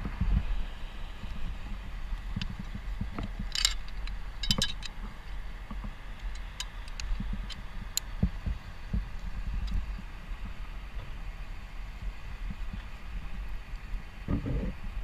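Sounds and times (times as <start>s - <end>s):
low wind rumble on microphone: 0.0s - 15.0s
metal climbing hardware clinking: 3.4s - 5.0s.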